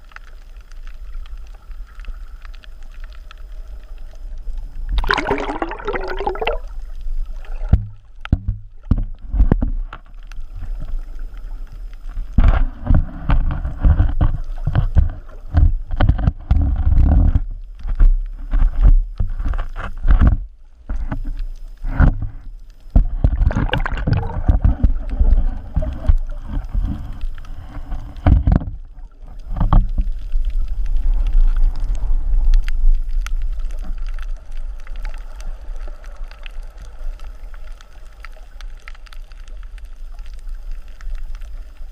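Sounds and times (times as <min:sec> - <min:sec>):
bubbling water crackles: 0:00.0 - 0:41.9
underwater surge rumbling: 0:04.9 - 0:07.8, 0:21.8 - 0:28.6.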